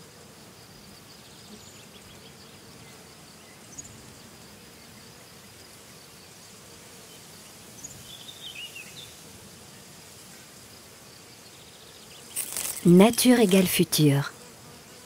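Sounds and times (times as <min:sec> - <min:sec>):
high insect trill: 0:00.4 - 0:14.9
soft background hiss: 0:00.8 - 0:14.4.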